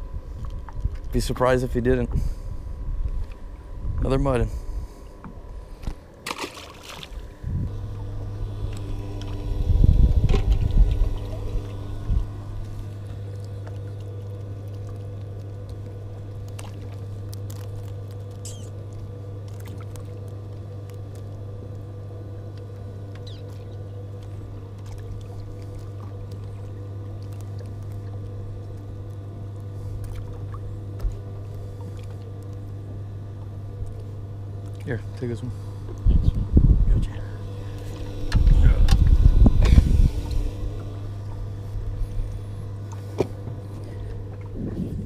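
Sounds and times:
small boat motor humming: 0.0s - 45.0s
loud low rumbling burst: 36.1s - 42.5s.

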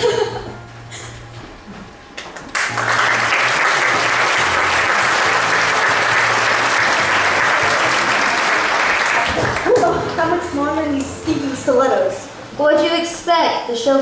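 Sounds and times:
audience applauding: 2.4s - 10.0s.

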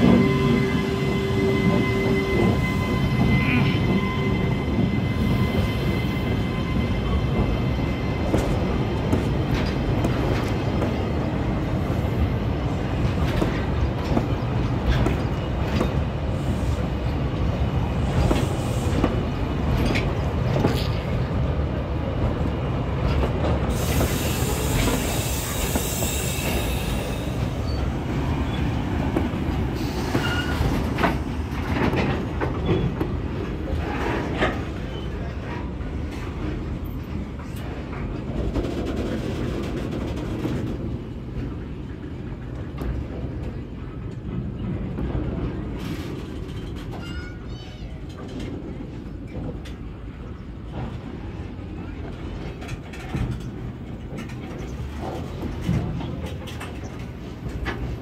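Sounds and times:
train wheels rumbling on rails: 0.0s - 58.0s
clacks over rail joints: 12.8s - 16.1s, 28.5s - 58.0s.

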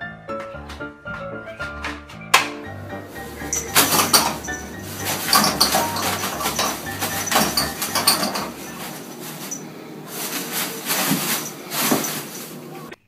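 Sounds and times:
toilet paper rustling: 3.0s - 13.0s
roll knocking in holder: 3.3s - 9.0s.

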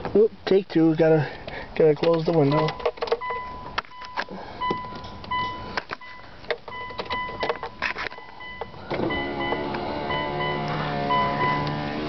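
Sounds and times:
handling clicks and knocks: 1.9s - 8.7s
car warning chime beeps: 2.5s - 12.0s.

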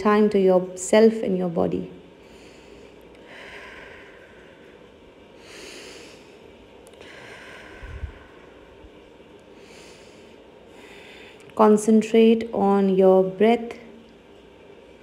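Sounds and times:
person breathing slowly: 2.2s - 11.5s.

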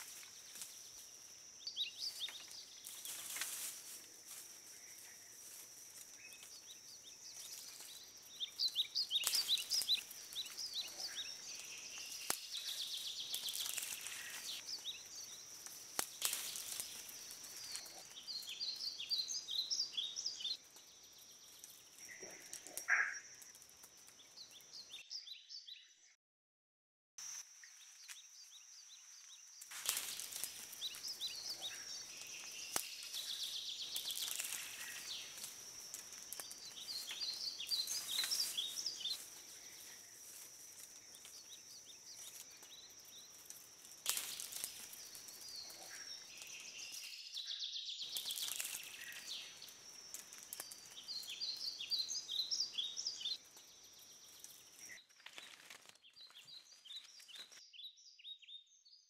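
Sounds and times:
background hiss: 0.0s - 22.1s, 27.2s - 47.2s
high insect whine: 0.0s - 24.9s, 27.2s - 57.2s
birds chirping and twittering: 0.0s - 26.2s, 27.6s - 59.0s.

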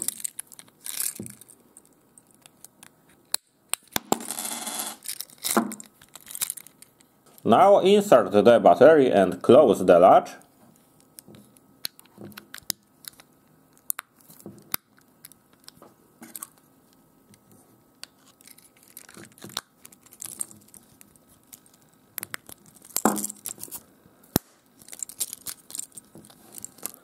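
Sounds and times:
plastic key fob clicks and rustles: 24.8s - 27.0s.

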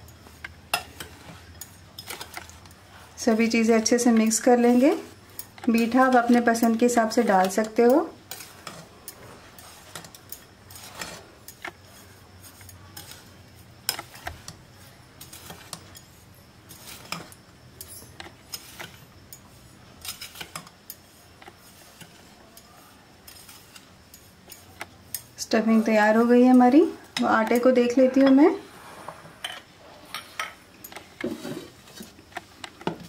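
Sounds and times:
spoon scraping a glass bowl: 3.3s - 20.7s.

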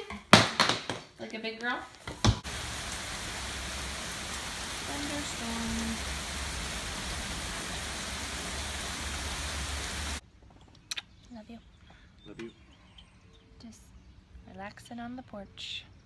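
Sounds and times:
rain pouring down: 2.3s - 10.2s.

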